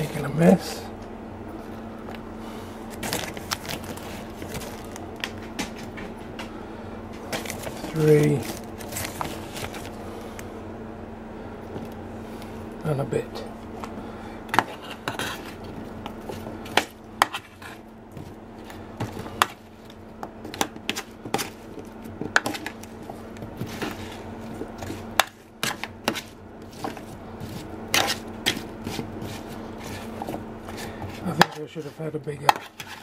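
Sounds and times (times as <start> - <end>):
steady low hum: 0.0 - 33.0
metal spoon scraping baking tray: 14.6 - 15.6, 30.7 - 33.0.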